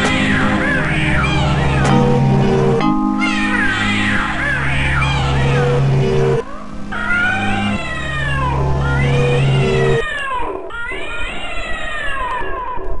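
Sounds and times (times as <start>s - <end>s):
steady low drone: 0.0s - 9.0s
cat-like meowing wails: 7.2s - 13.0s.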